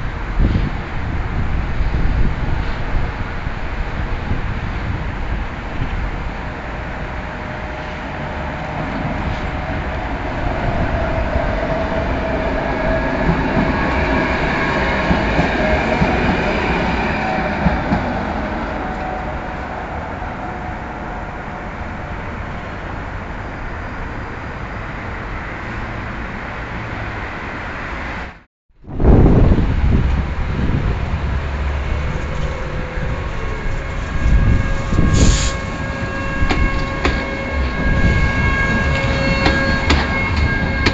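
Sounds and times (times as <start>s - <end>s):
wheels rumbling on rails: 0.0s - 40.9s
tram motor whine: 4.3s - 23.6s, 29.4s - 40.9s
sharp knocks: 39.4s - 40.9s.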